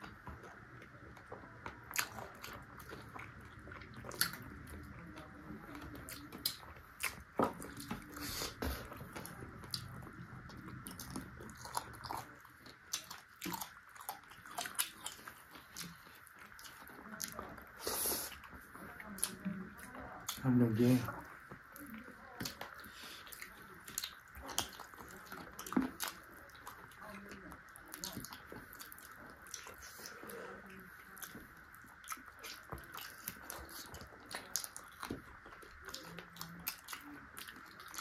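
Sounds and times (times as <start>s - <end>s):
person crunching and chewing: 1.2s - 38.0s.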